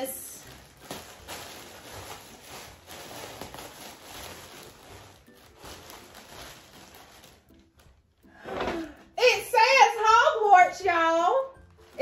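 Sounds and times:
plastic bag crinkling: 0.0 - 8.2, 11.5 - 12.0.

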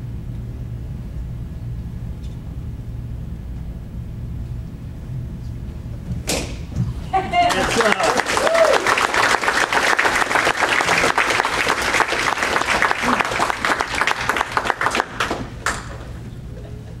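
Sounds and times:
audience applauding: 7.3 - 16.2.

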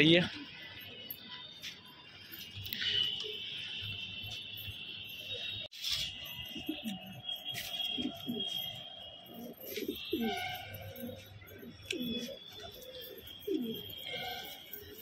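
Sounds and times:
pigeons cooing: 7.8 - 15.0.

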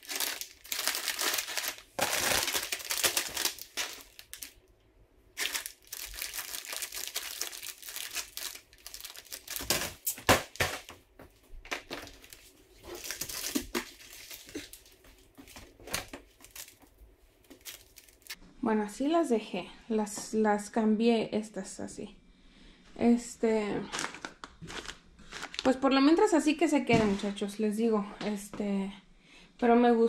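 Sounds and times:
plastic snack bags crinkling: 0.0 - 4.6, 5.4 - 10.9, 11.7 - 18.4, 23.8 - 25.8.

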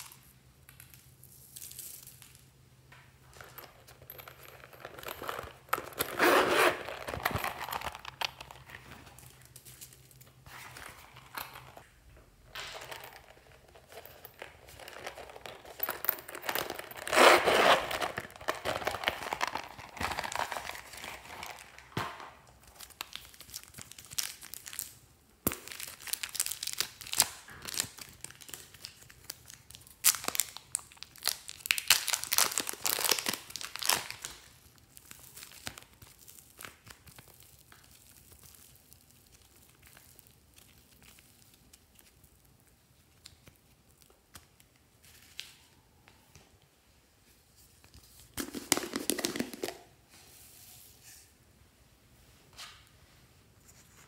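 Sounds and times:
zippers rasping open: 4.9 - 7.8, 16.5 - 18.2
plastic packaging crinkling: 12.8 - 22.0, 25.6 - 44.2
clay and slime crackling: 18.5 - 45.6.

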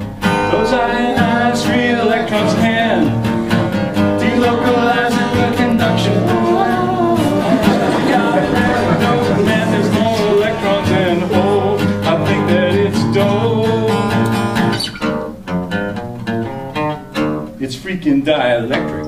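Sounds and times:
acoustic guitar strumming: 0.0 - 19.0
person singing: 0.5 - 3.2, 4.2 - 14.4.

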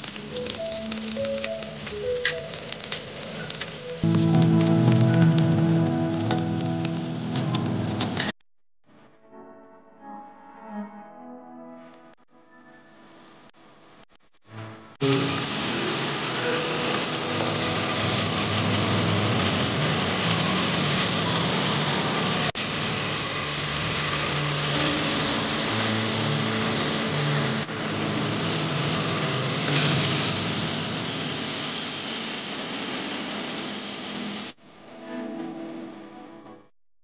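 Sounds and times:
meat sizzling in hot oil: 15.1 - 34.6.

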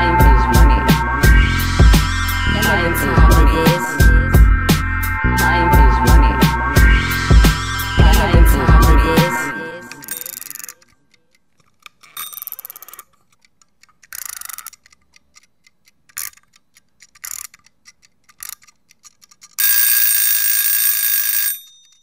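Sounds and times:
alarm clock ringing: 10.0 - 10.8, 19.6 - 22.0
clock ticking: 10.0 - 11.5.

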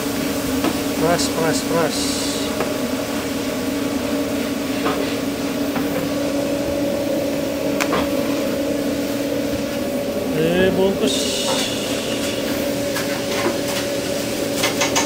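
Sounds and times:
electric machinery hum: 0.0 - 15.0
higher tone: 10.0 - 13.7.

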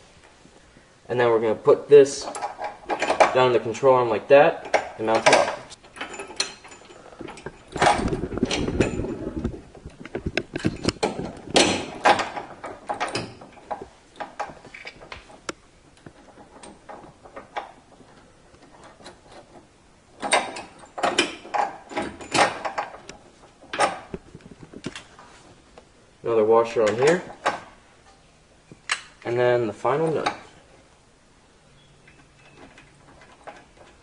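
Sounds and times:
metal hardware clicking and knocking: 2.1 - 3.6, 4.6 - 25.1, 26.7 - 27.8, 28.7 - 29.4, 30.0 - 30.6, 32.1 - 34.0.

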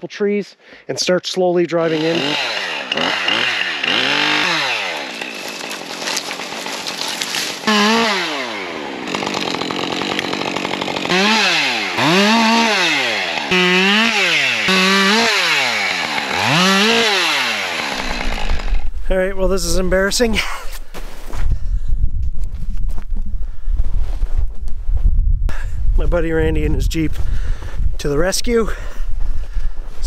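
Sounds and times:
chainsaw cutting wood: 1.8 - 19.0.

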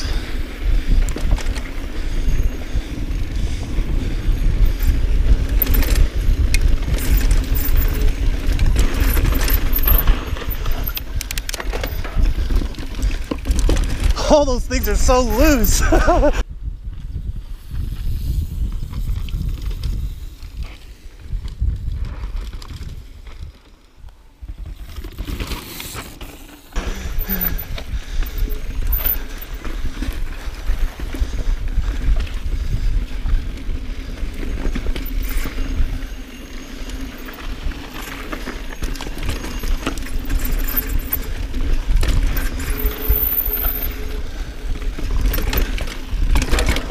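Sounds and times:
bike clicks and rattles: 0.0 - 14.2, 17.6 - 46.9
wind rumbling on microphone: 0.0 - 25.6, 26.2 - 46.9
tyres hissing on loose dirt: 25.3 - 31.4.

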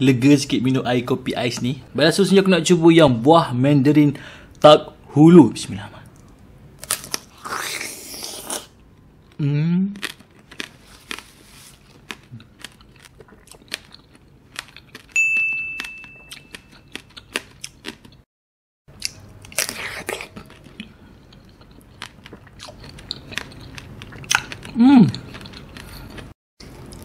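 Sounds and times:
crunching candied fruit: 6.8 - 15.2, 18.9 - 27.0
chime ringing: 15.2 - 16.9.

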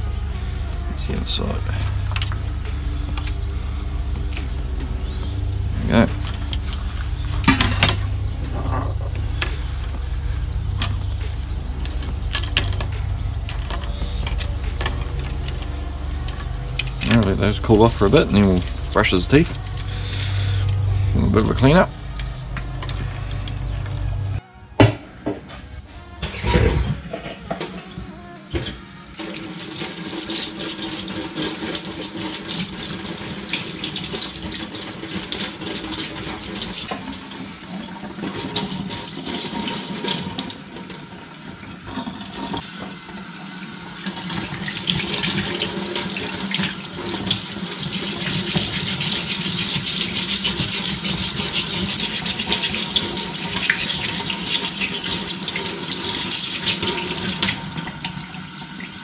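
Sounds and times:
brush scrubbing bones: 44.4 - 57.5.

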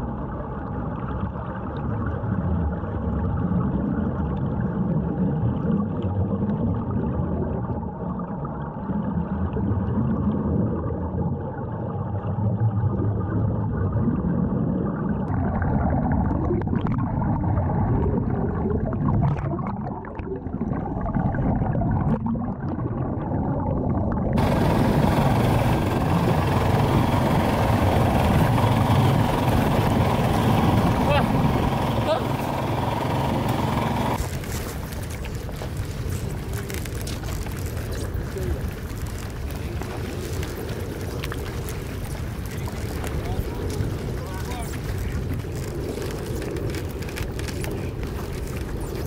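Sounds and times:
muffled underwater rumble: 0.0 - 49.0
water splashing at surface: 34.2 - 49.0.

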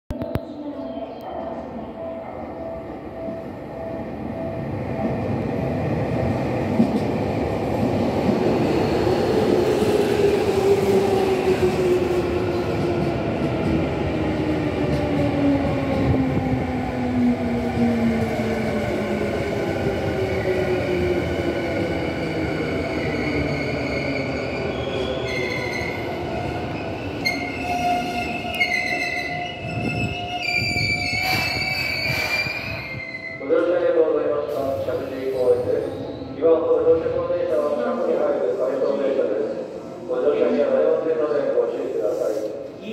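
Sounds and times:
train brakes squealing: 27.1 - 33.4.

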